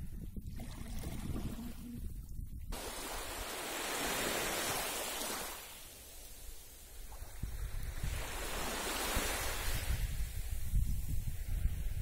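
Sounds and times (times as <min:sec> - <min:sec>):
wind rumble on microphone: 0:00.0 - 0:04.9, 0:06.4 - 0:12.0
small waves washing onto sand: 0:02.7 - 0:12.0.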